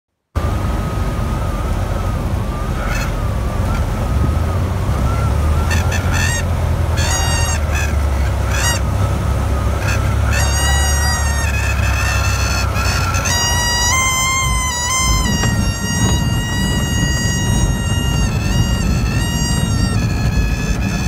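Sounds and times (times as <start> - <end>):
propeller plane engine droning: 0.4 - 21.0
stall warning horn honking: 0.4 - 21.0.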